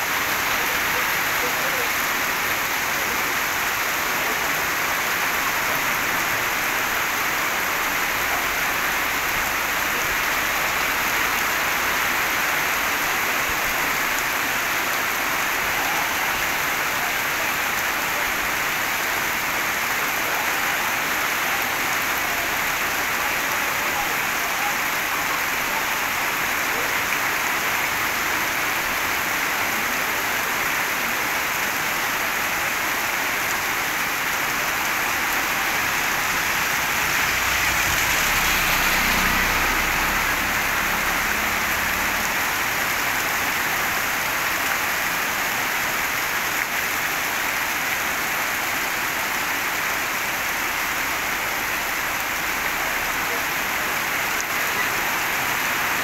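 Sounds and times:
heavy rain on pavement: 0:00.0 - 0:56.0
vehicle driving past: 0:37.2 - 0:42.3.

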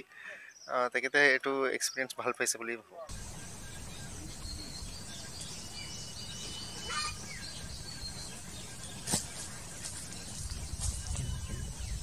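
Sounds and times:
small birds chirping: 0:00.0 - 0:02.2, 0:03.1 - 0:12.0
bird whistle: 0:03.1 - 0:08.3.

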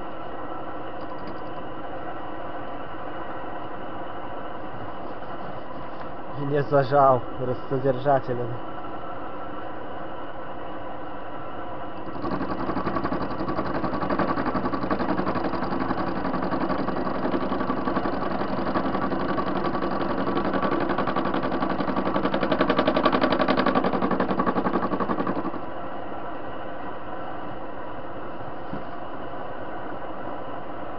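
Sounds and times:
lathe motor hum: 0:12.0 - 0:25.7.

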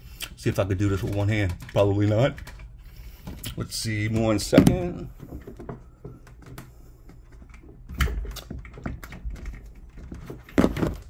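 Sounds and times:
hands fumbling cable connector: 0:03.2 - 0:11.0.

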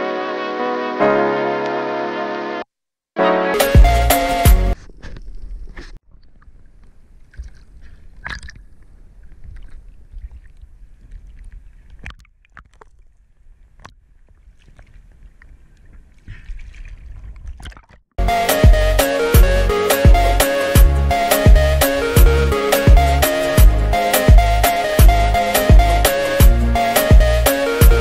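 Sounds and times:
water sloshing and lapping: 0:04.8 - 0:18.2.

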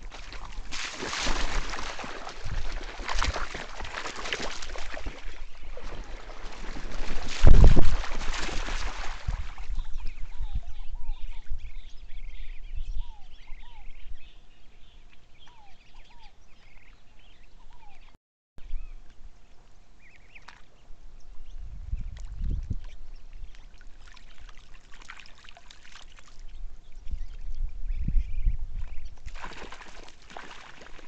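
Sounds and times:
water splash: 0:00.0 - 0:09.7, 0:29.2 - 0:31.0.

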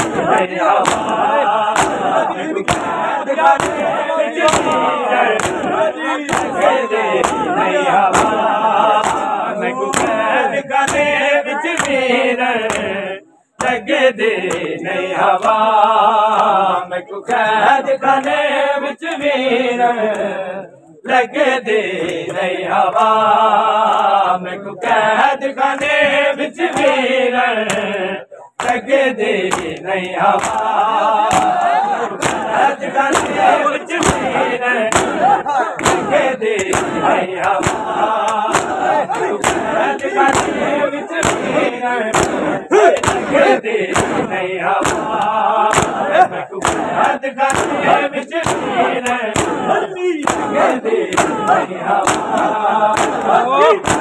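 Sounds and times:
hands slapping chests: 0:00.0 - 0:13.0, 0:13.6 - 0:13.8, 0:14.4 - 0:15.7, 0:16.3 - 0:16.6, 0:19.0 - 0:19.4, 0:25.6 - 0:27.0, 0:27.6 - 0:54.0
men chanting in unison: 0:00.0 - 0:54.0.

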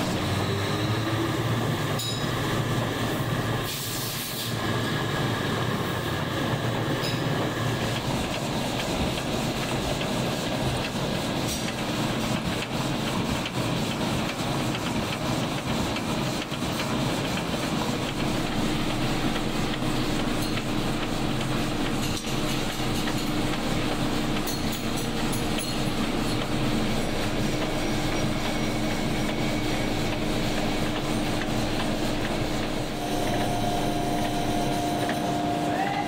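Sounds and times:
factory machinery clattering: 0:00.0 - 0:36.0
machine hum: 0:04.6 - 0:13.4, 0:16.7 - 0:36.0.

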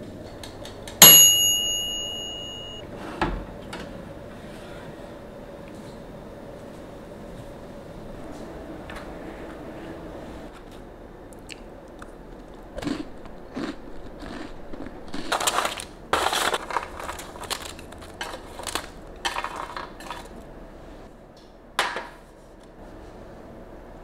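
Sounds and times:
pastries crunching: 0:11.5 - 0:20.3
paper rustling: 0:15.3 - 0:20.4
pastries on a metal tray: 0:15.3 - 0:21.0.

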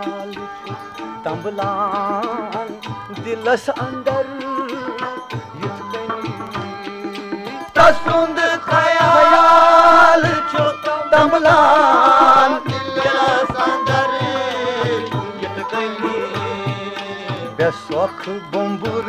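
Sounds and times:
tabla strokes: 0:00.0 - 0:19.0
wavering melody line: 0:07.3 - 0:19.0.

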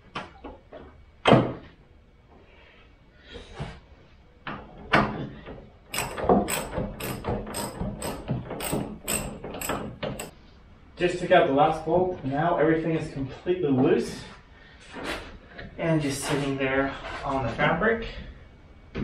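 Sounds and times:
metal knocks: 0:05.9 - 0:10.3
ratchet wrench clicking: 0:05.9 - 0:10.3.

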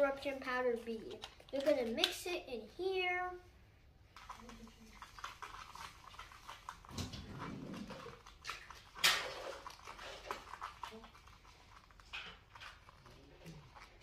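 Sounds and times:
plastic stirrer scraping in cup: 0:04.2 - 0:14.0.

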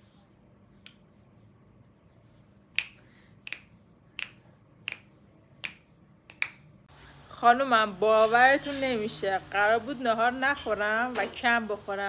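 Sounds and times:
finger snaps: 0:00.8 - 0:01.1, 0:02.7 - 0:06.8.

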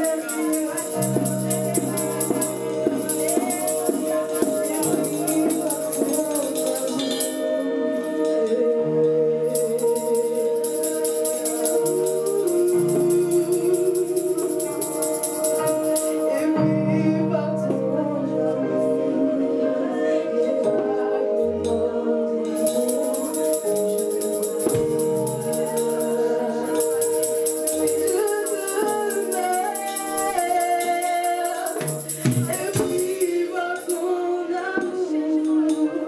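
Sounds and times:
shaken jingling percussion: 0:00.0 - 0:07.6, 0:09.6 - 0:16.5, 0:22.5 - 0:34.2
voices singing gospel: 0:00.0 - 0:36.0.

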